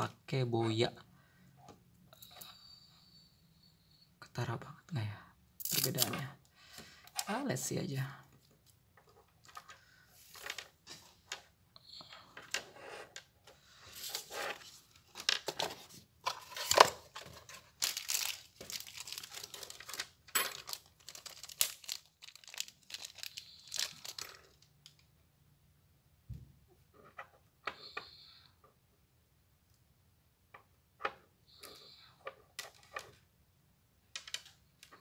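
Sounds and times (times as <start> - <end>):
plastic bags crinkling: 14.9 - 25.0.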